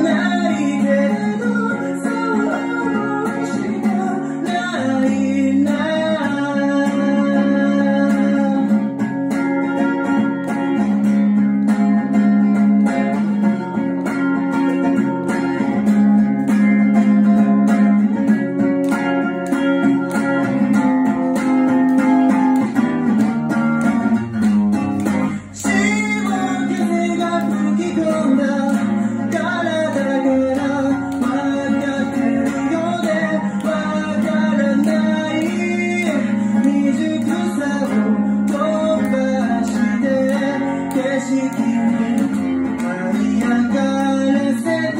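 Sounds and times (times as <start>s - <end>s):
man singing: 0.0s - 10.2s, 25.3s - 44.9s
strummed guitar: 0.0s - 44.9s.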